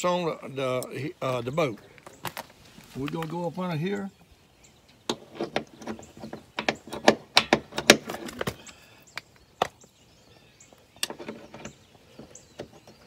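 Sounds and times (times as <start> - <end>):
metal cleat clicking and knocking: 5.1 - 8.5.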